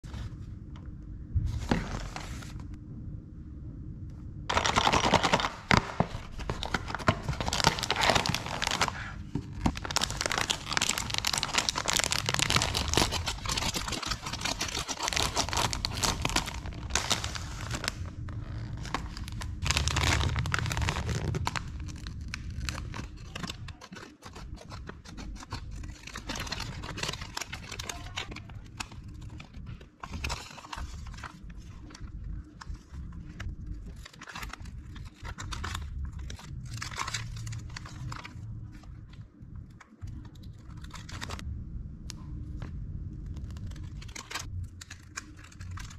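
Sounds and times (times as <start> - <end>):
scissors cutting plastic packet: 4.5 - 38.4, 43.4 - 45.9
plastic wrapping crinkling: 4.5 - 41.4.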